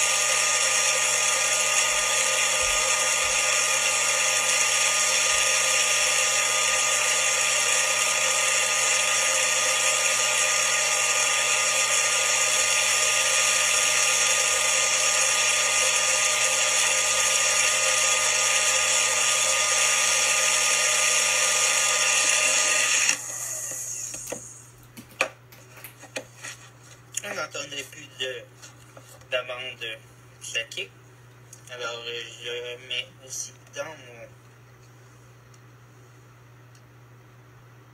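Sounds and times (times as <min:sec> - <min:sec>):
blender running: 0:00.0 - 0:24.6.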